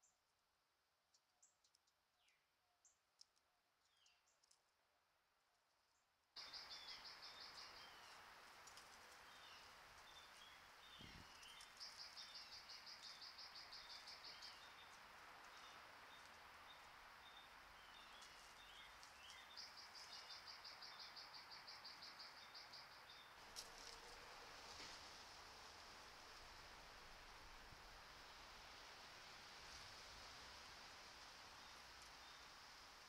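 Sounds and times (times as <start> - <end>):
steady hiss: 6.4 - 33.0.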